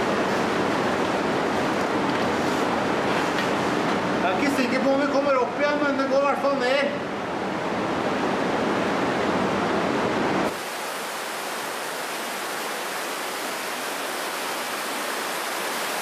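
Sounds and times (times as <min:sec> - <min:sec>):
underground river rushing: 0:10.5 - 0:16.0.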